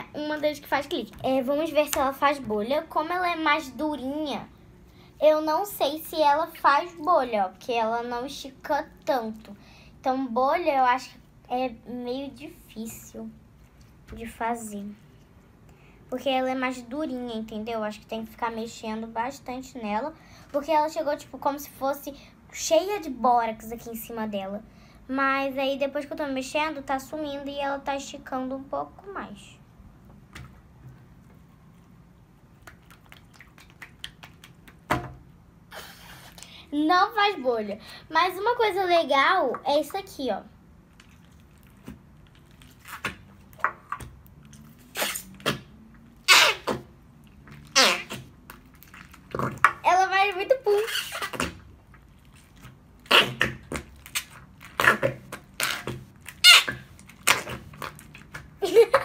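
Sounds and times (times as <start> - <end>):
slime squelch: 30.4 - 34.9, 39.3 - 58.6
fart putty fart noises: 44.8 - 45.7, 46.3 - 46.9, 47.6 - 48.3, 50.8 - 51.7, 53.0 - 53.8, 54.7 - 58.0.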